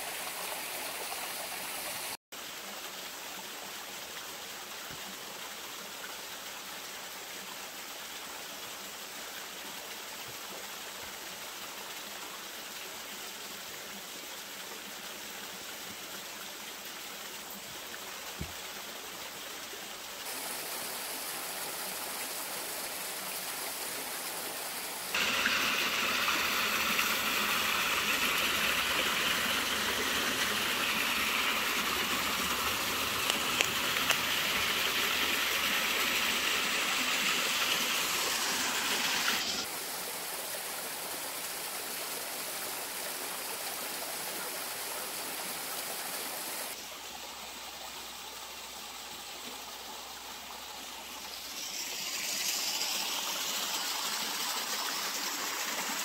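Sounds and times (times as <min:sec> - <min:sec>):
creek water flowing: 0:00.0 - 0:56.0
waterfall splashing into pool: 0:20.2 - 0:46.8, 0:51.2 - 0:56.0.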